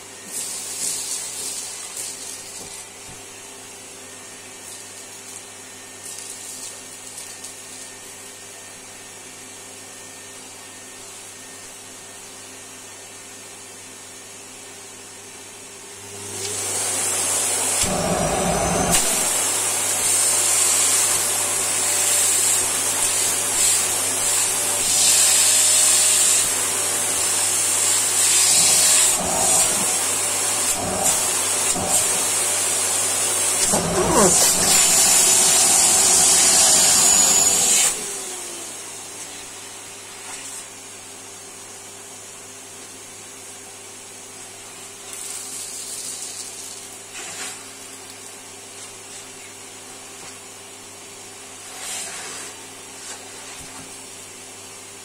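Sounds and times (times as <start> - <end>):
vacuum cleaner suction hiss: 0.0 - 8.6, 15.6 - 40.8, 51.4 - 54.1
vacuum cleaner motor hum: 0.0 - 42.3.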